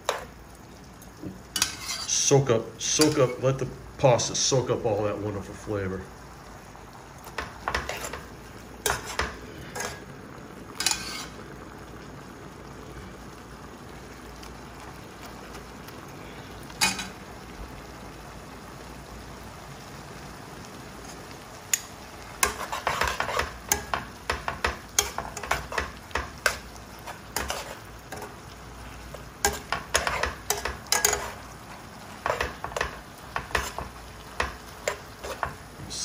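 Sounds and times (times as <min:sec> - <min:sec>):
metal tongs clicking and scraping pan: 0:00.0 - 0:00.3, 0:01.6 - 0:02.2, 0:02.9 - 0:03.4, 0:07.3 - 0:10.0, 0:10.8 - 0:11.3, 0:21.7 - 0:28.4, 0:29.1 - 0:31.4, 0:32.2 - 0:35.6
food sizzling in a pan: 0:00.0 - 0:36.0.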